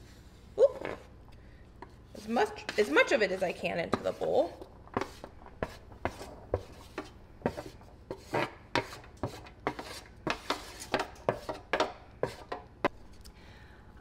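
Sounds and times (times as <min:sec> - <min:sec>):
utensil scraping a pot: 0:01.8 - 0:12.7.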